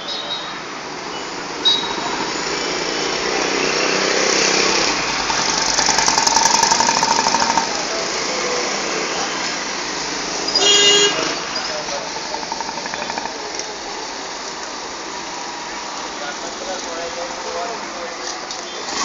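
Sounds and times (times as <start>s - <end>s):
road noise: 0.0s - 19.0s
small engine running: 4.6s - 7.8s.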